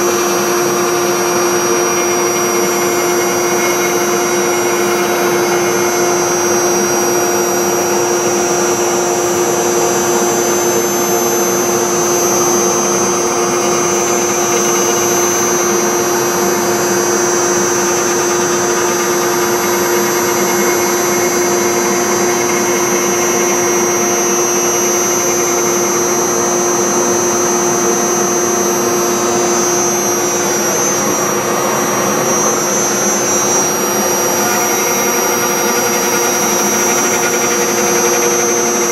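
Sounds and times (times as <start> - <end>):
router spindle whine and hum: 0.0 - 38.9
bit carving into wood: 29.4 - 38.9.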